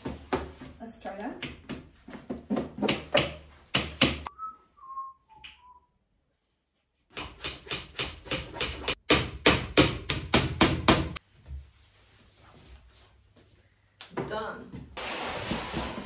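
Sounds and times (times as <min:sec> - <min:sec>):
person whistling short notes: 0:04.3 - 0:06.0.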